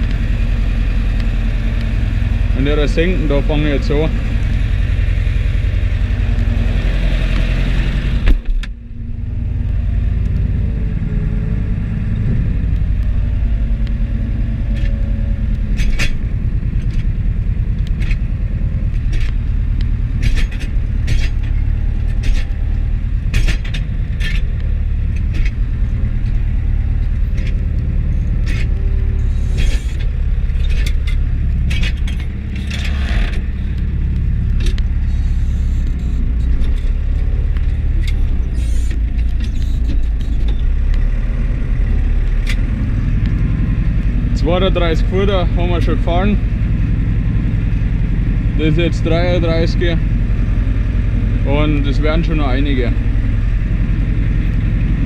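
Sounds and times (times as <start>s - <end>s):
tractor diesel engine under load: 0.0s - 55.0s
knocks and rattles: 12.1s - 55.0s
loud clunk: 20.2s - 26.3s.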